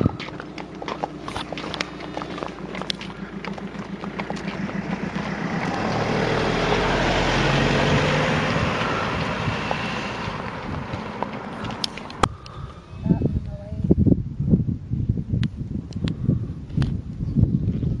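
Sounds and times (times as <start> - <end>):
wind on microphone: 0.0 - 3.2, 6.0 - 18.0
van driving past: 0.0 - 12.3
hooves clip-clopping on tarmac: 0.0 - 12.8.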